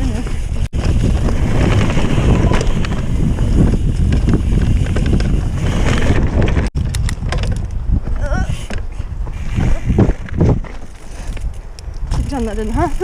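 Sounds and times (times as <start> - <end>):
bike clicks and rattles: 0.0 - 13.0
wind buffeting microphone: 0.0 - 13.0
tyre rumble on dirt: 0.2 - 8.3.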